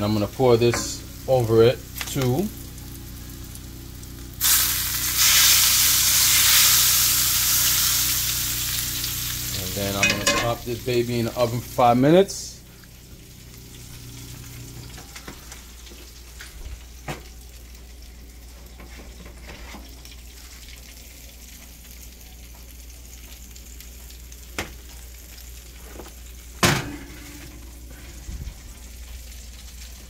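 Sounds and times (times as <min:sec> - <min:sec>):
low hum: 0:00.0 - 0:15.6
oil and butter sizzling: 0:00.0 - 0:30.0
loud metal clank: 0:10.0 - 0:10.6, 0:26.6 - 0:27.5.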